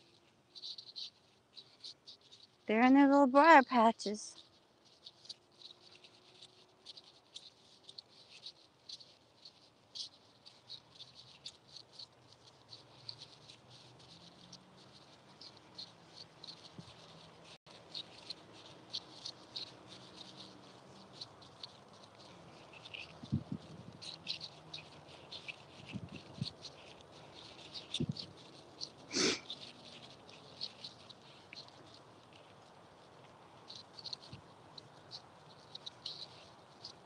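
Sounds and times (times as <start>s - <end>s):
dog pawsteps or tags ticking: 0.5s - 37.0s
footsteps: 29.1s - 29.5s.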